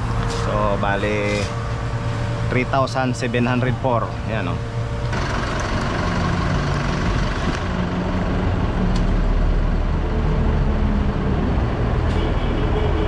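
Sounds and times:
diesel truck engine idling: 0.0 - 12.0.

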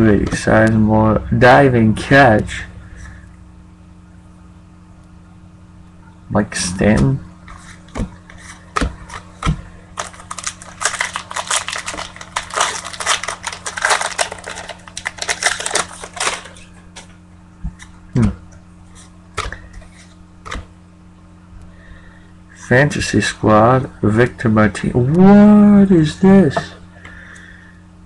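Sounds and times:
faint low hum: 0.0 - 28.0
wrapper crinkling: 7.7 - 17.2.

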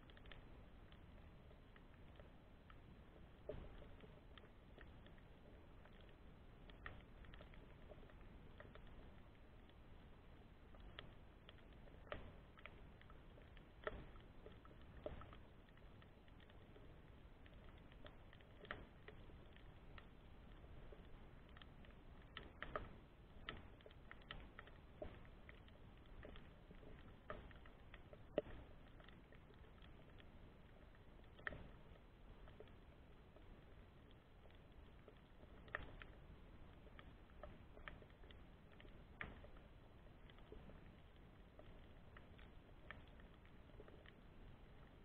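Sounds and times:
underwater clicks and crackles: 0.0 - 45.0.

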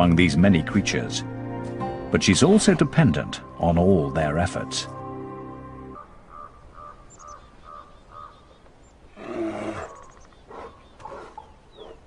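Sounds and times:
bear growling: 9.1 - 12.0.

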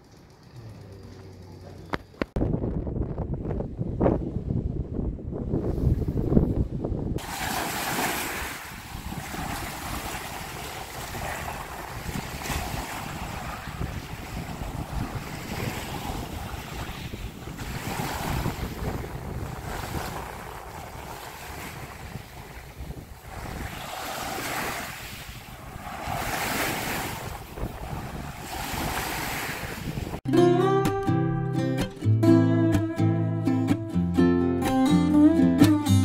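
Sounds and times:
wind buffeting microphone: 0.0 - 30.3
waves washing onto sandy shore: 7.2 - 30.2.

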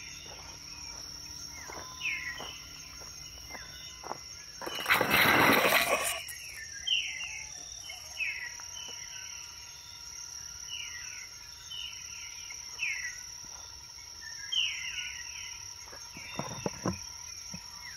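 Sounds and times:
high-pitched insect drone: 0.0 - 17.9
birds whistling falling notes: 3.5 - 8.6.

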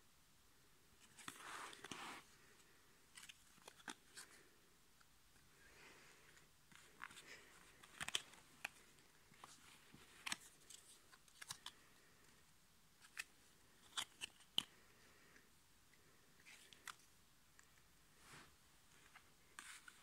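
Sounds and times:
trading cards clicking and snapping: 7.7 - 8.8.

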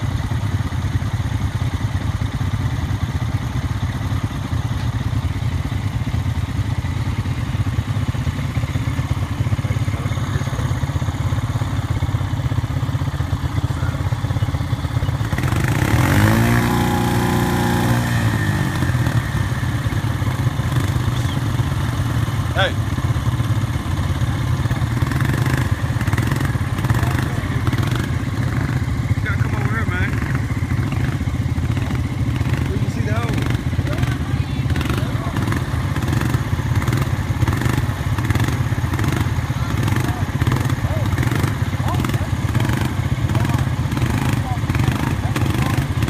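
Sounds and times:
quad engine running and revving: 0.0 - 46.0.

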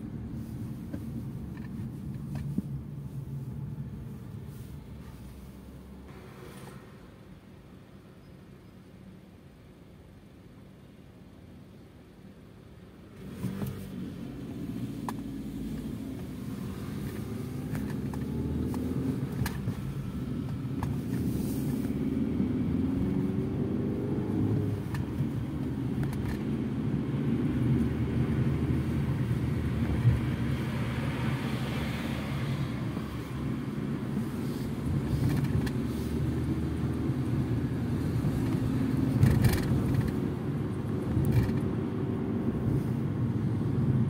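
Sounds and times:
road and tyre noise: 0.0 - 44.0
car engine accelerating: 13.2 - 44.0.

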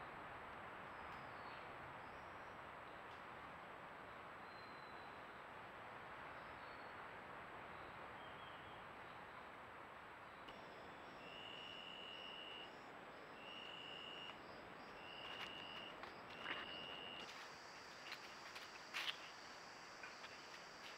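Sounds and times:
faint steady hiss: 0.0 - 20.9
insect buzzing call: 10.5 - 20.9.

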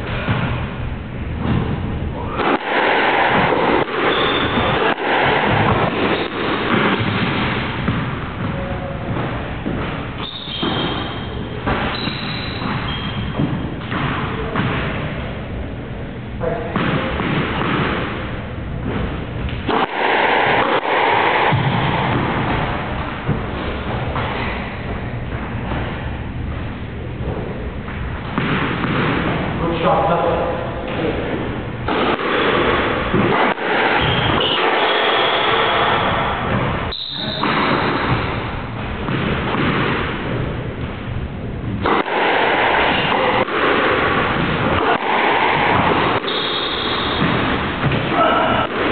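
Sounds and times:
squash ball thudding: 0.0 - 48.9
shoes squeaking on court floor: 4.0 - 4.9, 8.4 - 14.5, 34.0 - 38.8, 46.2 - 47.2
shoes squeaking on wooden floor: 10.2 - 13.6.

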